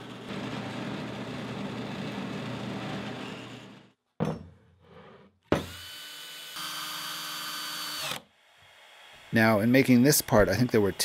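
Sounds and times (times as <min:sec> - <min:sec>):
drill press drilling plastic: 0:00.0 - 0:03.9, 0:05.6 - 0:09.3.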